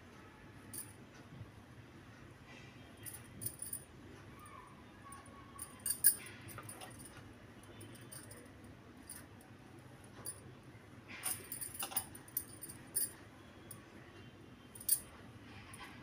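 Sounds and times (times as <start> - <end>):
faint low hum: 0.0 - 16.0
bangles clinking: 0.7 - 0.9, 3.0 - 3.9, 5.6 - 9.4, 11.2 - 13.8, 14.7 - 15.1.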